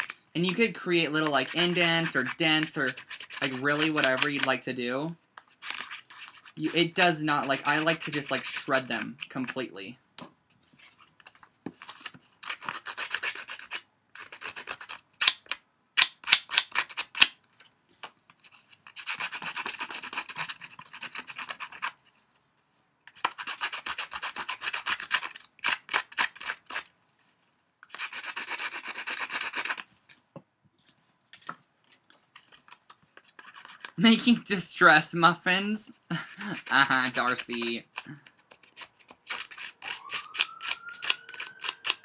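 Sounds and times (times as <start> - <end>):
blade scraping paper edges: 0.0 - 4.6, 5.4 - 9.6, 10.8 - 17.4, 18.3 - 22.2, 23.1 - 26.9, 27.8 - 29.9, 31.4 - 34.6, 36.3 - 42.0.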